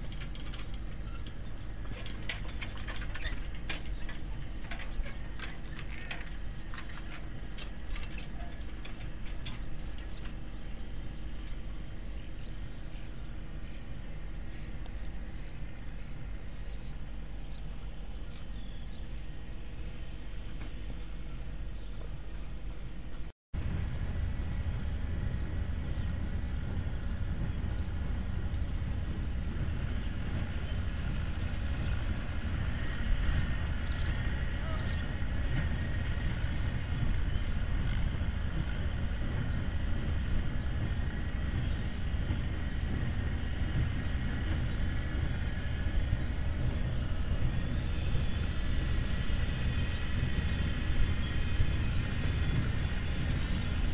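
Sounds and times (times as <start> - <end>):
faint high bird chirps: 10.0 - 19.3.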